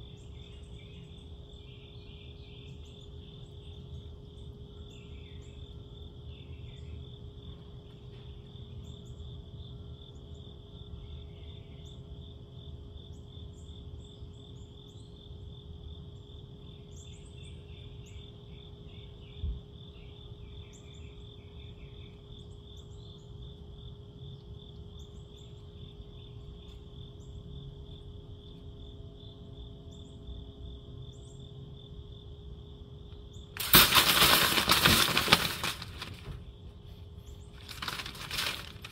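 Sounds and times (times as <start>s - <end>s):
night insects trilling: 0.0s - 38.9s
metallic clatter of wire cage: 33.6s - 36.4s, 37.6s - 38.9s.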